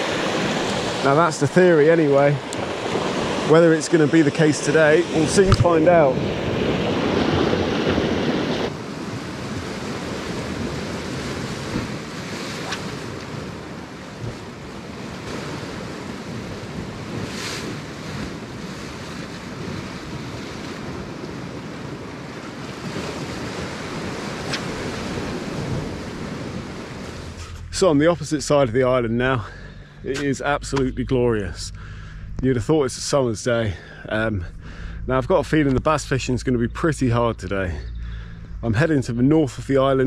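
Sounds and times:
sea waves washing among rocks: 0.0s - 31.5s
wind noise on microphone: 5.1s - 27.8s.

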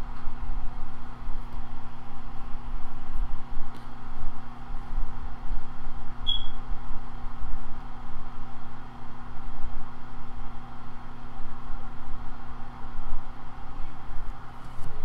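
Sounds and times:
machinery hum and rumble: 0.0s - 15.0s
short high squeak: 6.3s - 6.6s.

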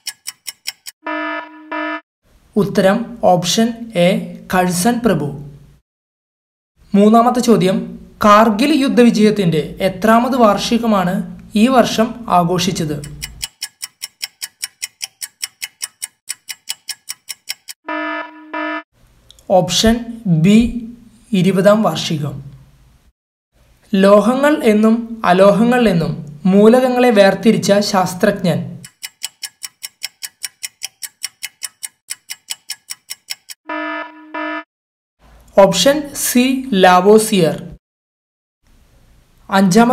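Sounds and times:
rapid clock ticking: 0.0s - 1.0s, 13.0s - 17.8s, 28.8s - 33.6s
buzzer tone: 1.0s - 2.0s, 17.8s - 18.8s, 33.7s - 34.7s.

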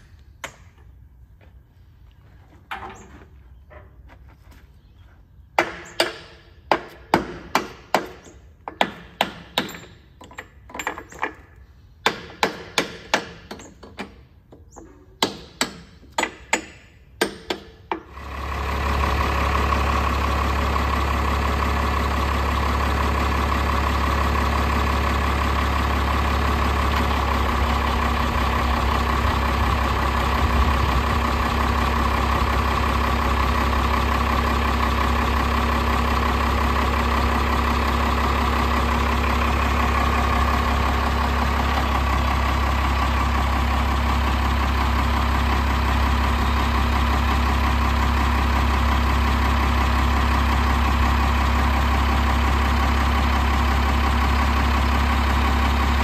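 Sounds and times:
diesel truck engine idling: 18.0s - 56.0s.

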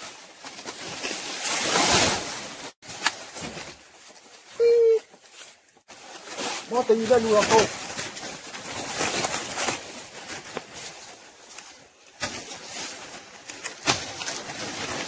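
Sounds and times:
dry leaves rustling and crackling: 0.0s - 15.0s
footsteps on leaf litter: 0.0s - 15.0s.

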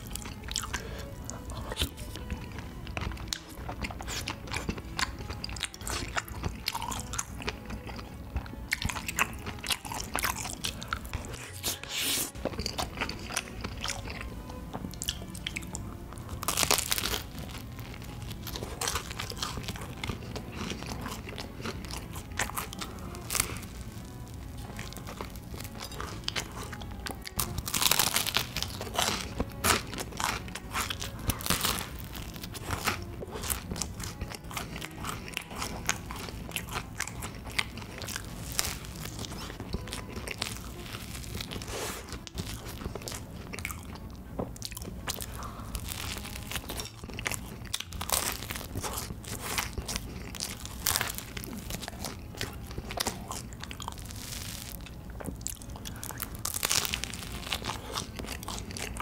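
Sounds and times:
crunching and chewing waffle: 0.0s - 59.0s.

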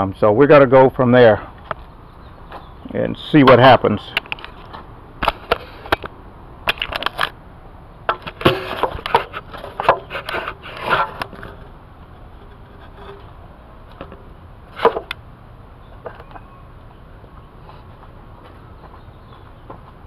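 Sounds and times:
camera handling clicks and knocks: 6.7s - 7.4s.

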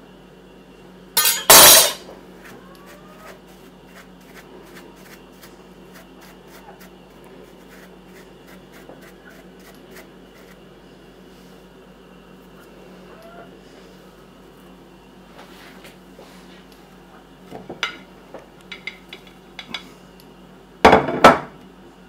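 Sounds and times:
pastry brush scratching: 2.4s - 10.6s.

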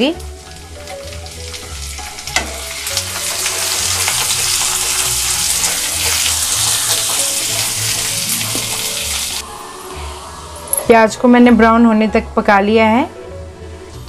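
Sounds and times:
onions sizzling in hot oil: 0.0s - 9.4s.

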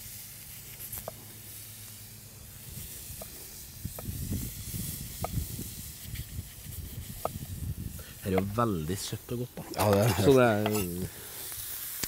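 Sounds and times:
background hiss: 0.0s - 12.0s
knife cutting on wooden board: 9.7s - 10.9s.

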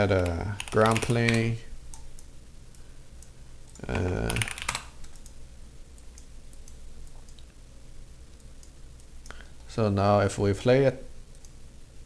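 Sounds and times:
computer keyboard typing: 0.0s - 2.1s, 3.2s - 5.4s.

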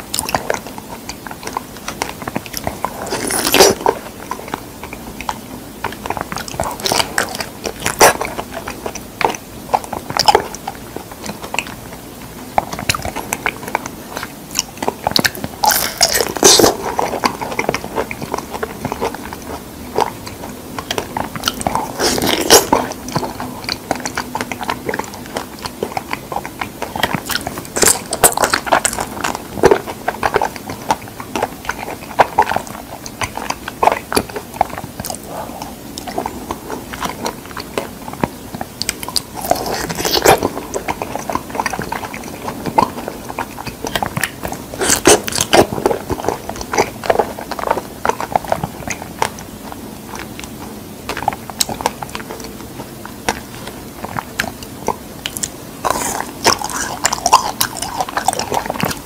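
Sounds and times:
wet chewing mouth sounds: 0.0s - 59.0s.

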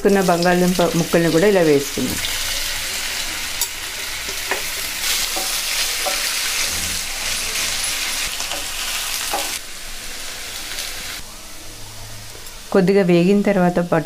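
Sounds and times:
potatoes sizzling in hot oil: 0.0s - 11.2s.

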